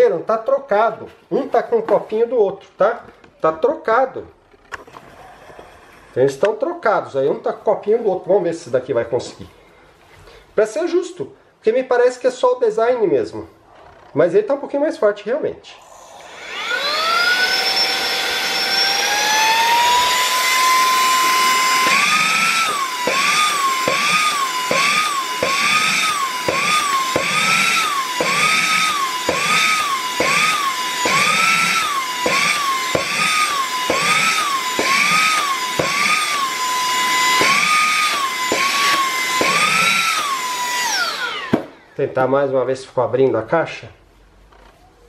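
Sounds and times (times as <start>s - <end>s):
mini vacuum motor whining: 15.8s - 42.0s.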